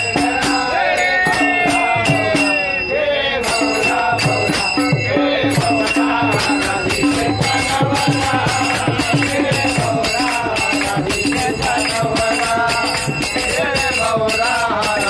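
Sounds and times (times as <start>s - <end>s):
hand cymbals clashing: 0.0s - 15.0s
men singing together: 0.0s - 15.0s
hands clapping: 8.7s - 13.2s.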